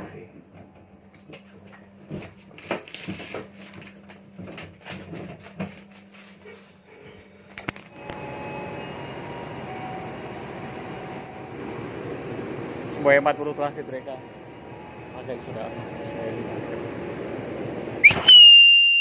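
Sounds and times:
paper rustling: 2.2 - 6.8
train interior hum: 5.8 - 18.4
air-conditioning whoosh: 7.9 - 18.3.

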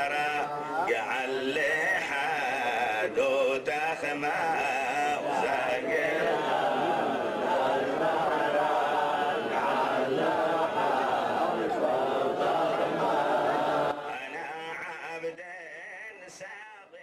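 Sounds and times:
man chanting into a microphone: 0.0 - 6.2, 13.9 - 17.0
men singing along: 0.0 - 15.2.

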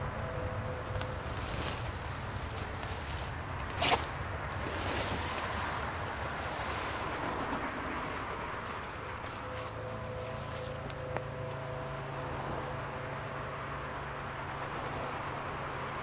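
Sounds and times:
body dragged through bushes: 0.8 - 7.3.

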